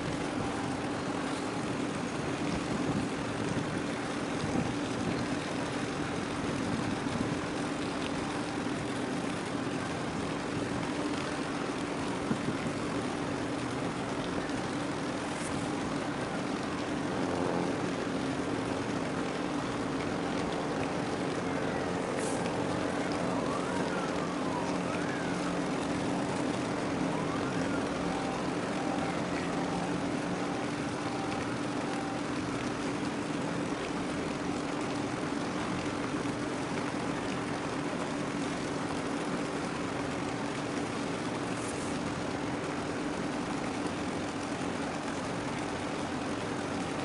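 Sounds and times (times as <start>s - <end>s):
faint wavering siren-like tones: 0.0s - 12.3s, 12.9s - 43.3s
low machinery hum: 0.0s - 47.0s.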